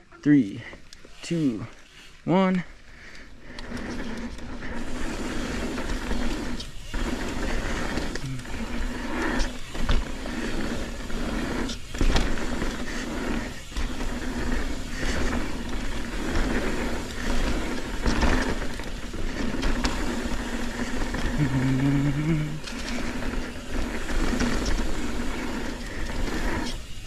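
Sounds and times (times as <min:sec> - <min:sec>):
tyres rolling on dirt and rock: 0:03.3 - 0:27.0
bike knocks and rattles: 0:05.5 - 0:21.4.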